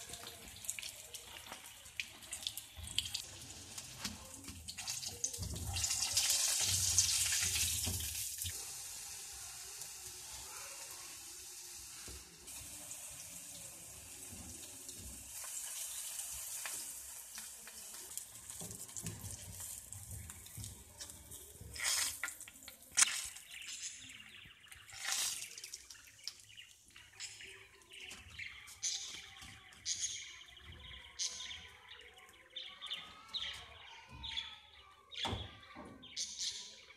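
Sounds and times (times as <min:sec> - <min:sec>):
fish sizzling in hot oil: 0:00.0 - 0:23.1.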